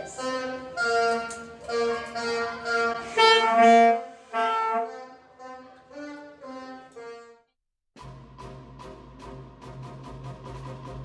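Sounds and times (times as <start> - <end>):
saxophone notes: 0.0 - 7.5.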